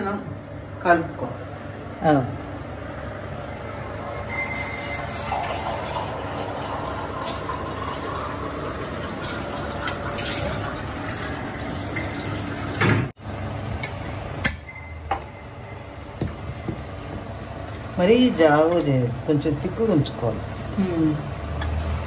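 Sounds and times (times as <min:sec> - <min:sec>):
water trickling into flour: 0:04.9 - 0:12.8, 0:17.2 - 0:22.0.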